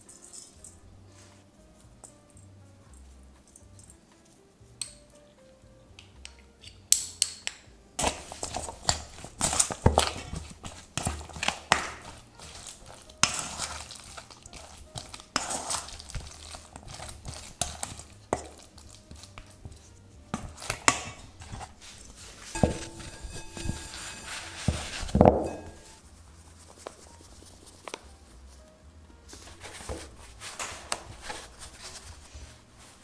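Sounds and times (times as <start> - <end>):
spoon scraping metal bowl: 8.0 - 26.0
wet sticky mixing: 8.0 - 27.9
cloth rustling: 8.0 - 28.2, 29.3 - 33.0.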